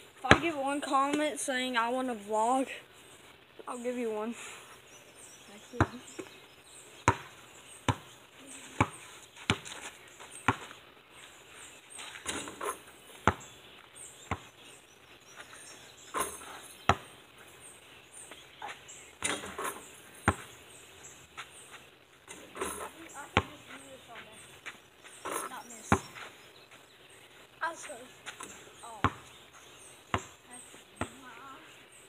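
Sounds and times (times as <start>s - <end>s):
basketball bouncing: 0.3s - 0.6s, 5.8s - 6.3s, 7.1s - 8.1s, 13.2s - 13.4s, 20.2s - 20.5s, 22.4s - 23.6s, 25.4s - 26.2s, 29.0s - 29.3s.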